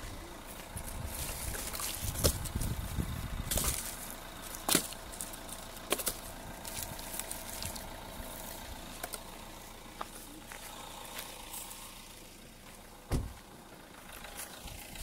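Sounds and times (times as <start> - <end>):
footsteps crackling on dry ground: 0.0 - 15.0
low outdoor rumble: 0.0 - 15.0
dull thump on microphone: 13.1 - 13.4.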